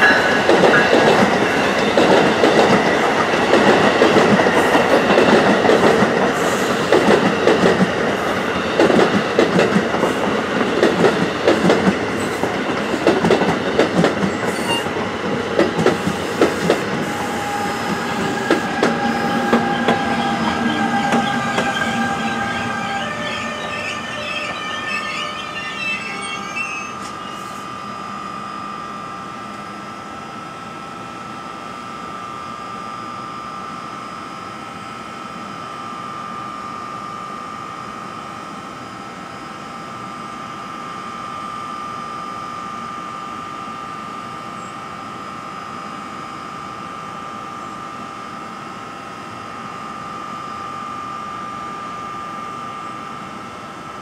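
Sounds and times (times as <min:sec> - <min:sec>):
locomotive high whine: 0:13.6 - 0:30.6
train brakes squealing: 0:14.3 - 0:15.0, 0:15.9 - 0:28.7.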